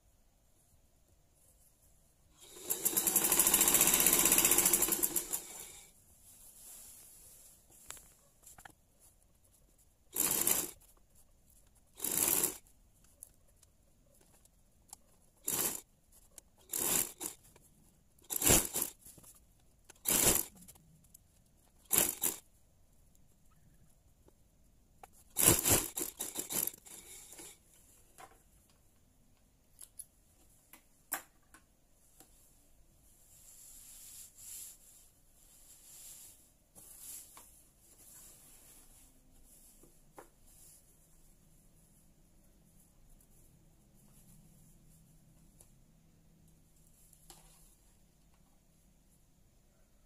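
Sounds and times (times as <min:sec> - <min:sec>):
silk curtain fabric rustling: 0:00.5 - 0:12.8, 0:32.0 - 0:45.2.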